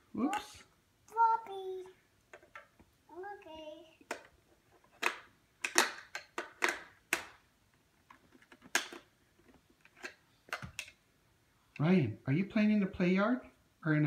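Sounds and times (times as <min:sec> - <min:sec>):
plastic toys clicking: 0:04.0 - 0:07.4, 0:08.1 - 0:11.0.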